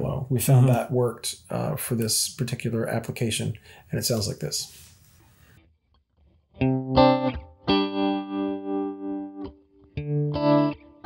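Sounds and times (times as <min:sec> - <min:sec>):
electric guitar chords with tremolo: 0:06.5 - 0:11.0.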